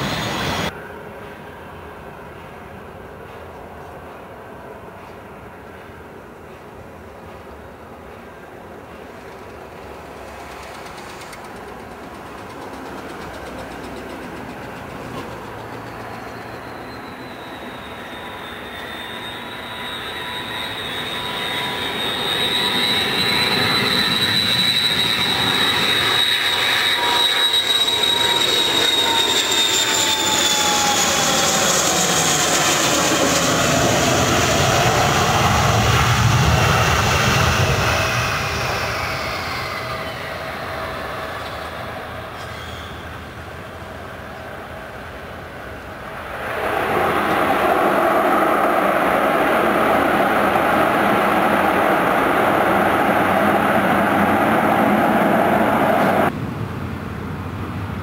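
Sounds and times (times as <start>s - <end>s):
jet airliner engines whining: 0.0s - 2.9s, 8.0s - 58.0s.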